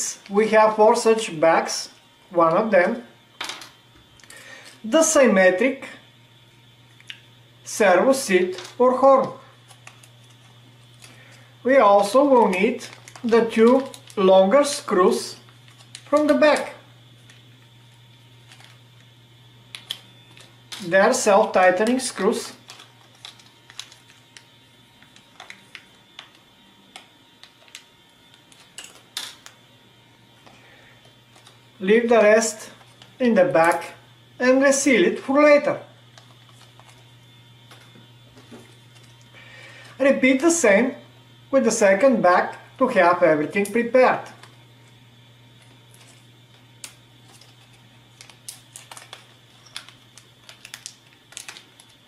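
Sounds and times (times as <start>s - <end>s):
small parts clicking in a bag: 9.7s - 11.4s, 12.0s - 14.2s, 15.4s - 16.4s, 18.4s - 18.8s, 19.7s - 20.9s, 22.6s - 29.6s, 45.6s - 52.0s
plastic bag crinkling: 12.0s - 16.5s, 21.8s - 26.4s, 45.6s - 52.0s.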